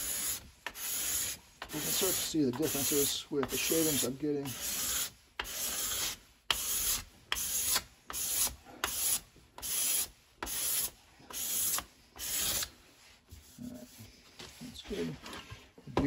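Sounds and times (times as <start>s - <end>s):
card scraper scraping wood: 0.0s - 12.8s.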